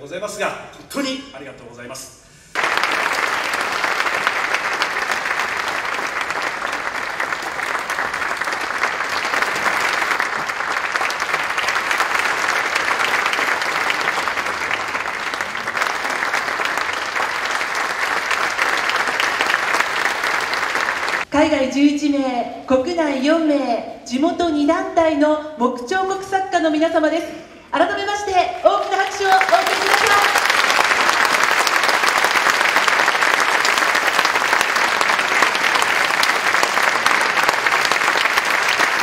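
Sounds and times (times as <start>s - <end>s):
audience applauding: 2.5s - 21.3s, 28.9s - 39.0s.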